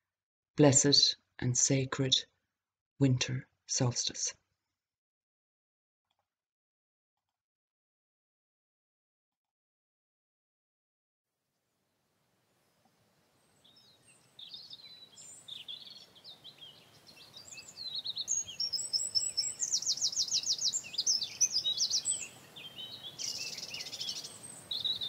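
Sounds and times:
songbird singing: 13.4 - 25.0.

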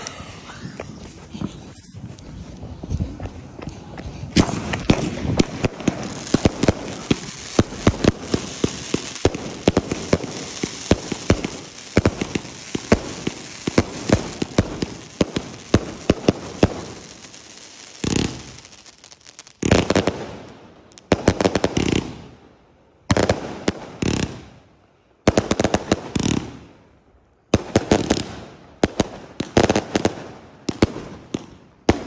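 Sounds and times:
fireworks crackling: 0.0 - 22.3
fireworks shots and bursts: 4.2 - 18.8, 19.6 - 20.5.

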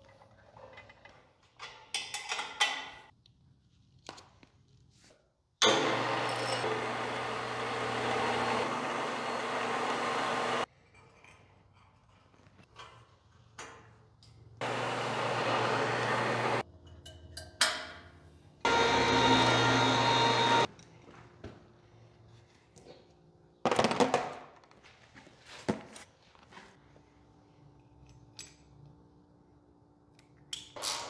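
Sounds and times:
electric motor whining: 5.6 - 10.6, 14.6 - 16.6, 18.7 - 20.7.

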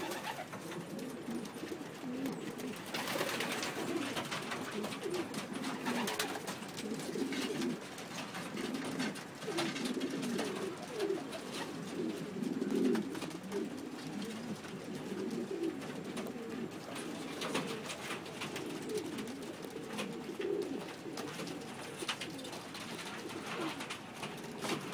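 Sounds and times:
pigeons cooing: 0.0 - 24.9.

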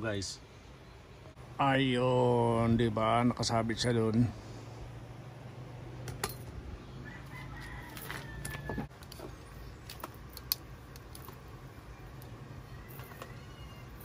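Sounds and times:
rooster crowing: 6.9 - 8.9, 12.7 - 14.0
sharp clicks: 9.8 - 11.4.

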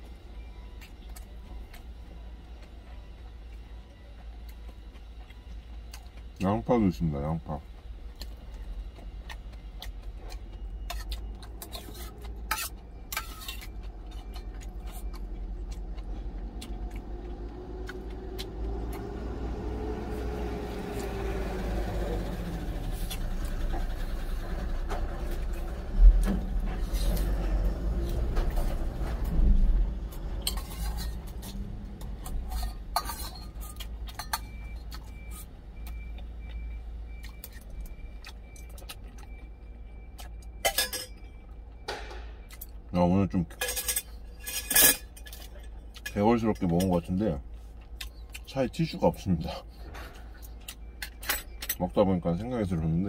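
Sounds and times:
truck passing: 0.0 - 43.0
low vehicle rumble: 0.0 - 53.0
utensils clinking on metal tin: 30.4 - 31.6, 32.2 - 34.5, 40.6 - 41.2, 43.5 - 46.9.

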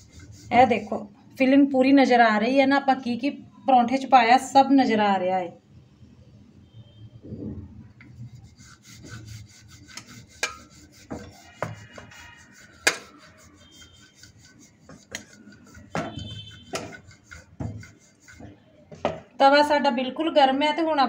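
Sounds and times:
rolling pin rubbing on board: 0.0 - 1.1, 8.0 - 19.2.

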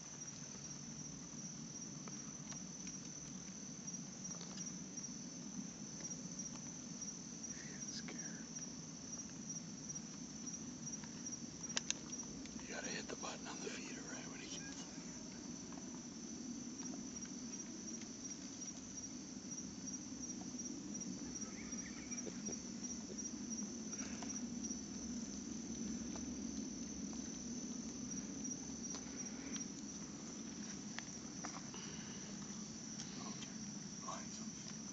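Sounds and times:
night insects trilling: 0.0 - 34.9
faint ticks: 2.0 - 3.6, 10.0 - 13.2, 28.8 - 34.8.

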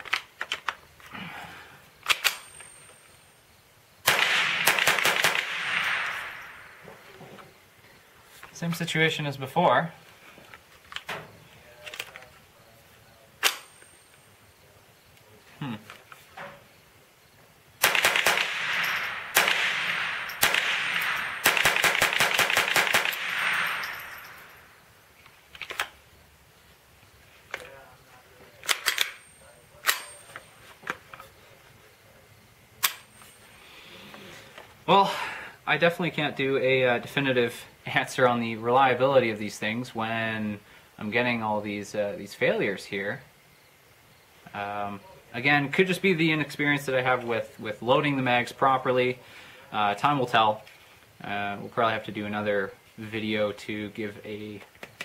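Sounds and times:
magazine clicks: 0.0 - 0.8, 2.0 - 2.6, 4.1 - 6.6, 13.4 - 13.8, 17.8 - 24.3, 25.2 - 26.0, 28.6 - 29.2, 32.8 - 33.1
rifle shots echoing: 4.0 - 7.1, 17.8 - 24.8.

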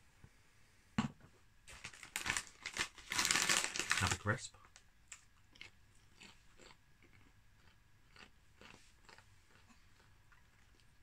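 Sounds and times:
chewing crisps: 1.7 - 4.3, 5.1 - 11.0.

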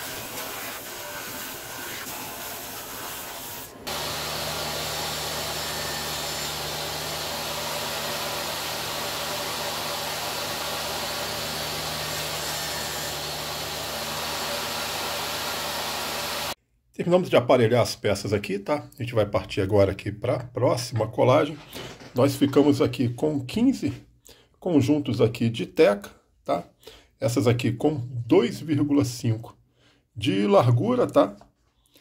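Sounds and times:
drum sander hissing: 0.0 - 16.6
table saw motor hum: 0.0 - 16.6.

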